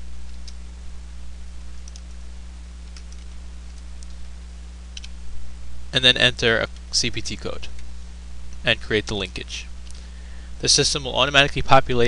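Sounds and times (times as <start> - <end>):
low electrical hum: 0.0 - 12.0
computer mouse and key clicks: 0.3 - 0.6, 1.7 - 2.2, 2.8 - 4.3, 4.9 - 5.2.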